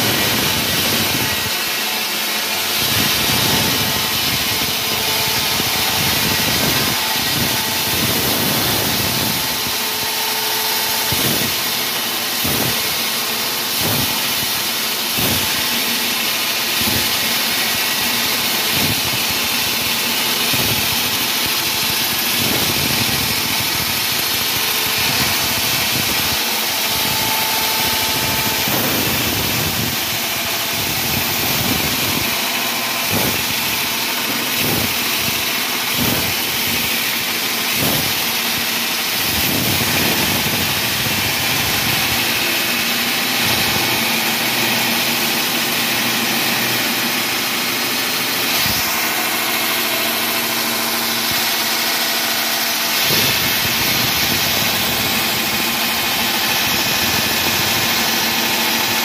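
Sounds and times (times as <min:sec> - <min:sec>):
wall saw machine drone: 0:00.0 - 0:59.0.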